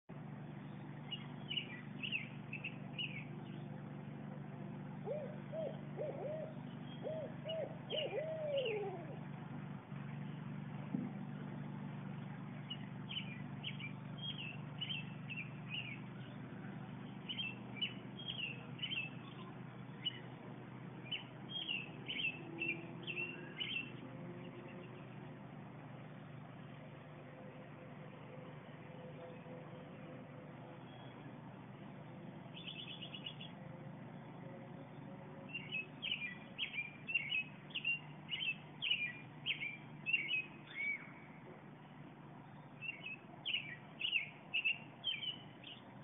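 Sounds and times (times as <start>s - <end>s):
small birds chirping: 0.4s - 26.8s, 30.6s - 46.0s
owl hooting: 5.0s - 9.2s.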